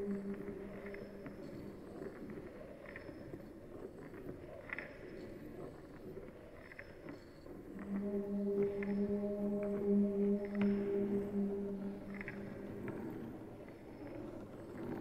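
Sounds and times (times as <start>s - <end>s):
low drone tone: 0.0s - 2.3s, 7.8s - 15.0s
faint squeaks: 7.8s - 15.0s.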